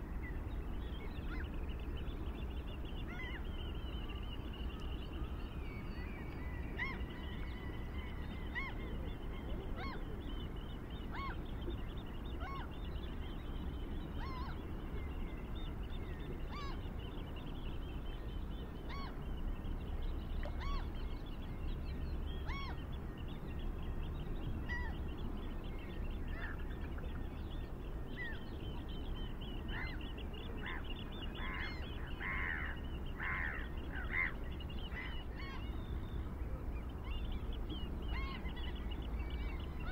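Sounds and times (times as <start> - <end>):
bird calling: 20.4 - 21.0.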